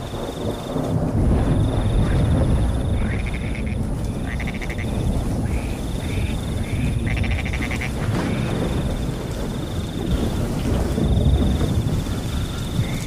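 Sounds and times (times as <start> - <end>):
cricket trilling: 0.0 - 13.0
rain: 0.0 - 13.0
thunder rumbling: 0.0 - 13.0
frog rattling call: 2.0 - 8.8.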